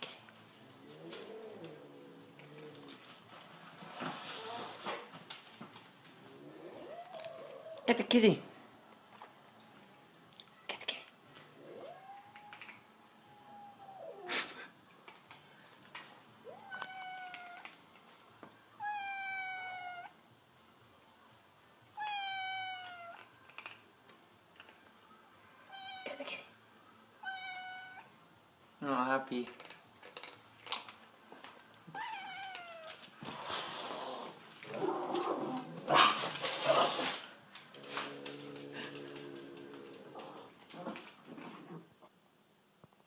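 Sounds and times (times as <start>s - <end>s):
cat yowling: 11.6s - 14.3s, 16.4s - 17.7s, 18.8s - 20.2s, 22.0s - 23.2s, 27.2s - 28.1s, 31.9s - 33.0s.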